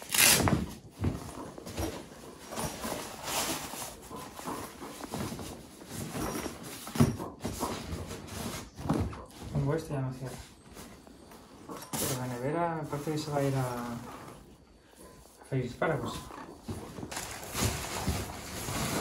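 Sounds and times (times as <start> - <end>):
duffel bag rustling and crumpling: 16.0 - 19.0.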